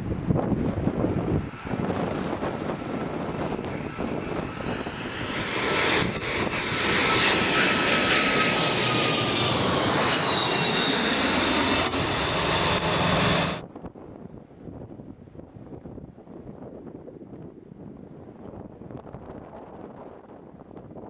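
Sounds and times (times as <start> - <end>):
jet airliner roaring overhead: 0.0 - 13.6
jet engine whine: 0.0 - 13.6.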